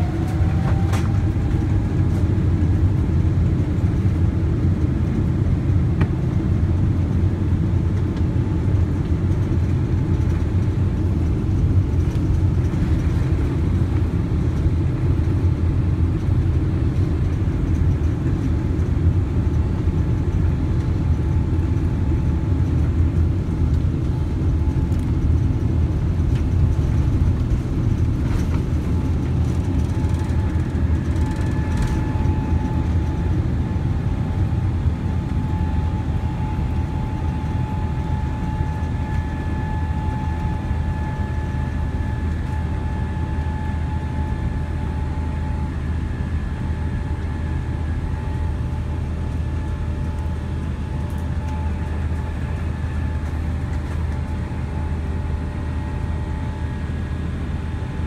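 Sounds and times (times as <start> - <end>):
faint engine whine: 0.0 - 58.0
jet engine low rumble in cabin: 0.0 - 58.0.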